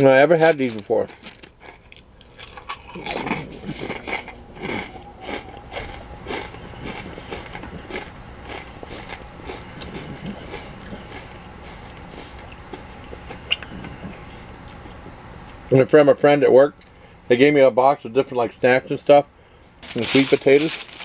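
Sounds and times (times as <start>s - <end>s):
person chewing crisp chips: 0.0s - 15.0s, 19.8s - 21.0s.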